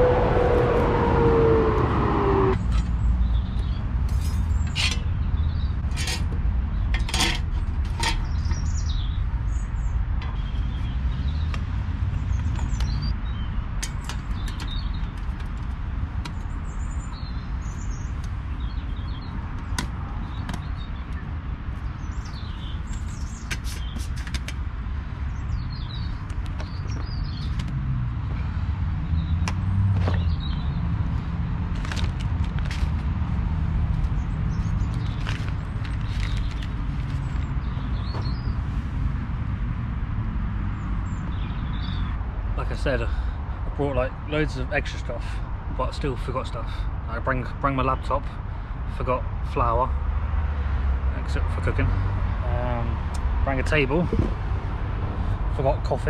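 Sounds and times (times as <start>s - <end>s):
vehicle passing: 0.0s - 2.8s, 27.6s - 32.1s, 51.8s - 55.6s
low rumble of road traffic: 0.0s - 56.0s
small birds chirping: 1.4s - 31.3s, 34.0s - 38.9s, 40.7s - 49.9s.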